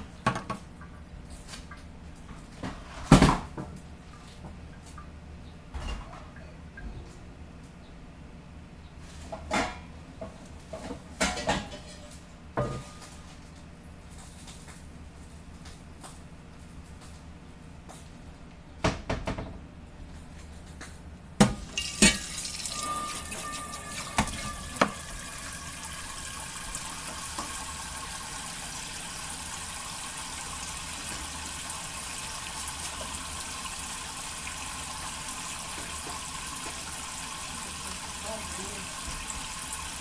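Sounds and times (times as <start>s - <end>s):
tap running into sink: 21.4s - 33.8s, 34.4s - 40.0s.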